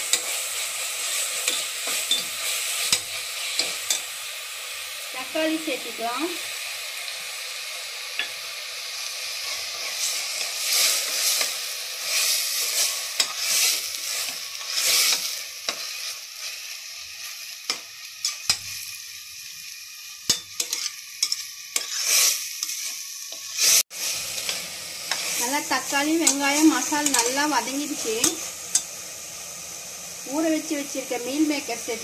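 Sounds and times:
food sizzling in hot oil: 0.0s - 32.0s
spatula scraping pot: 20.6s - 23.8s.

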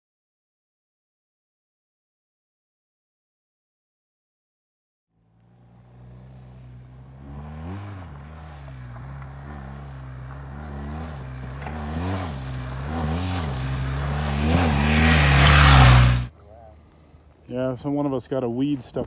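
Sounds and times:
motorcycle engine revving: 5.2s - 16.3s.

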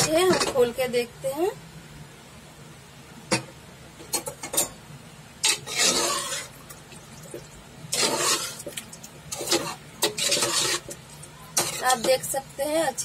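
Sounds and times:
ladle stirring thick gravy: 5.4s - 12.4s.

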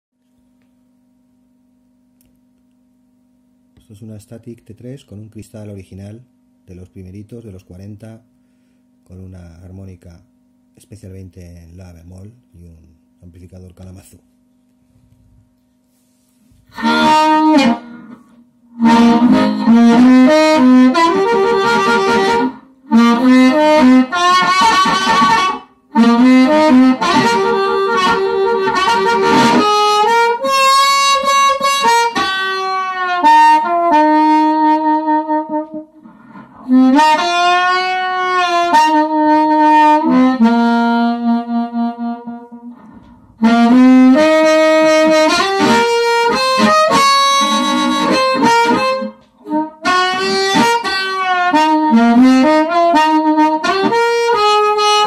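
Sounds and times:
amplified harmonica notes: 15.9s - 55.0s.

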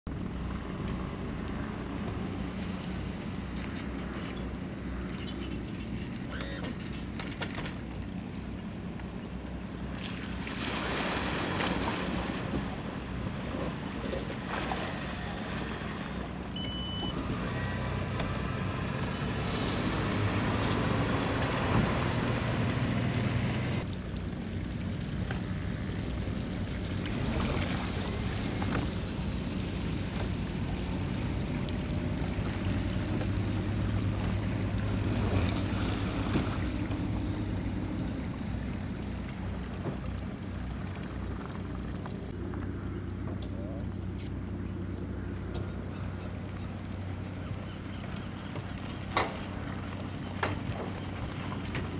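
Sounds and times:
water lapping against hull: 1.4s - 17.4s, 23.4s - 51.9s
outboard motor idling: 12.2s - 19.2s, 20.3s - 51.9s
short high beep: 16.6s - 17.7s.

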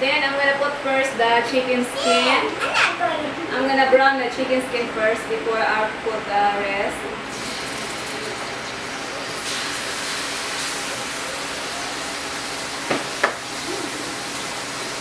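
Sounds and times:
chicken sizzling in a wok: 7.3s - 15.0s
utensil knocks: 12.9s - 13.4s.

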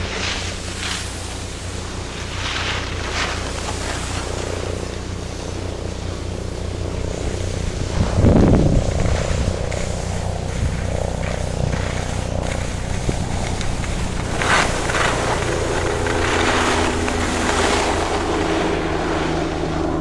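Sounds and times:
skis scraping over snow: 0.0s - 20.0s
wind rumble: 0.0s - 20.0s
microphone handling noise: 6.7s - 18.8s.

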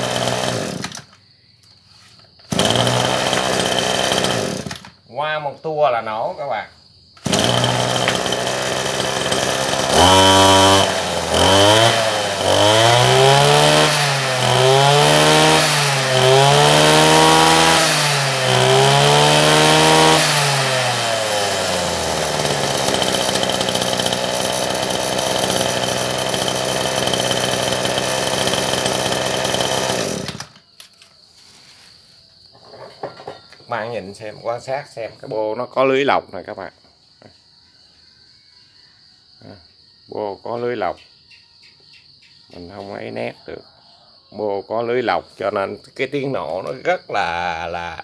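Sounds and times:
brush cutter engine revving and idling: 0.0s - 1.0s, 2.5s - 4.9s, 7.2s - 30.6s.

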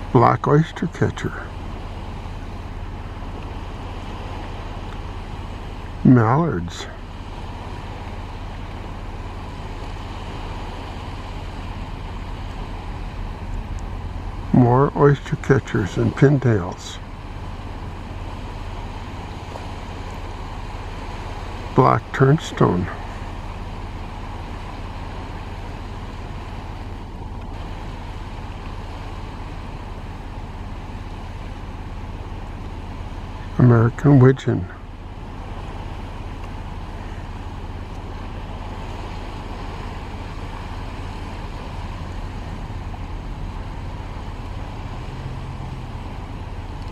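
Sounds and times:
low wind rumble: 0.0s - 46.9s.

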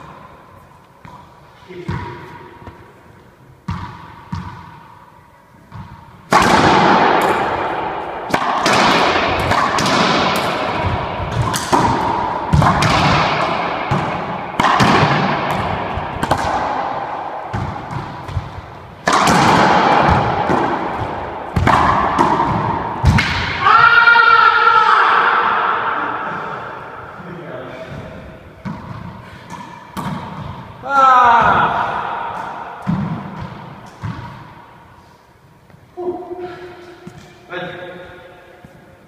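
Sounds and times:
ball impacts off walls with echo: 1.0s - 2.9s, 3.6s - 4.9s, 5.7s - 34.8s, 36.4s - 38.8s
sharp racquet hits: 3.6s - 5.0s, 5.7s - 35.0s.

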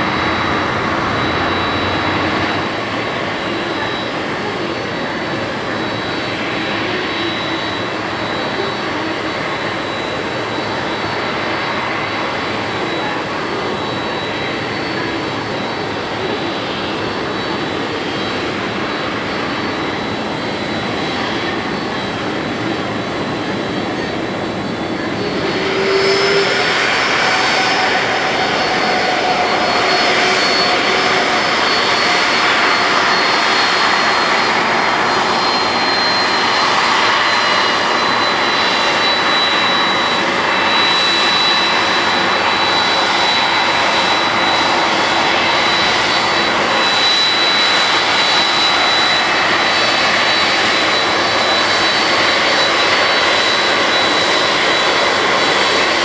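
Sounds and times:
high thin engine whine: 0.0s - 56.0s
jet engines rushing: 0.0s - 56.0s.

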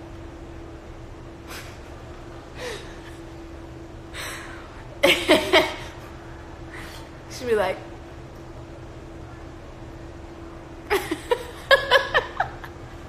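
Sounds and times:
woman breathing out: 2.6s - 3.2s, 4.1s - 4.8s
woman laughing: 5.0s - 6.0s, 10.9s - 12.8s.

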